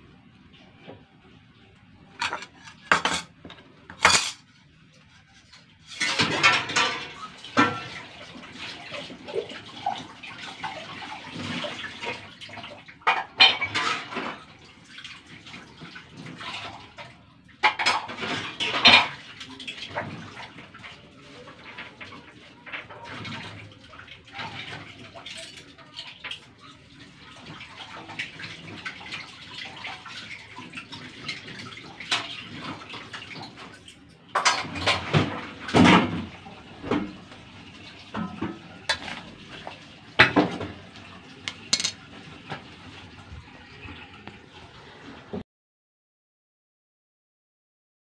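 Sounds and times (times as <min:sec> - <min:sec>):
water running: 0:00.0 - 0:45.4
dishes and cutlery clattering: 0:02.2 - 0:04.5, 0:05.3 - 0:08.2, 0:13.1 - 0:14.4, 0:17.6 - 0:20.3, 0:30.7 - 0:37.2, 0:38.0 - 0:42.7.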